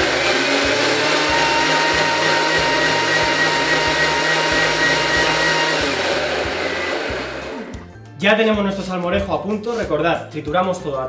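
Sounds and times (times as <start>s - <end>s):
food processor whirring: 0.0s - 7.9s.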